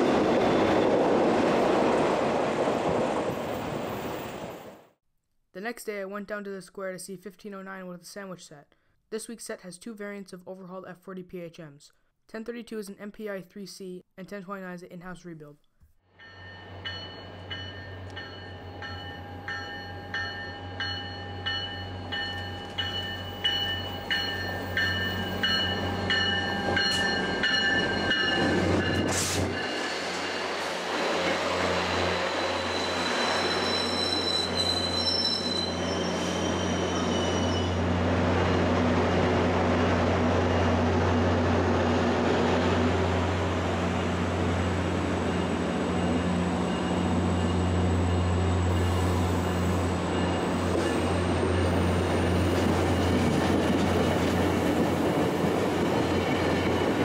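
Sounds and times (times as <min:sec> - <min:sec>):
wheels clattering and squealing on rails: 0:00.0 - 0:04.8, 0:16.2 - 0:42.7, 0:43.9 - 0:57.0
train bell ringing: 0:16.2 - 0:30.7, 0:45.1 - 0:52.6.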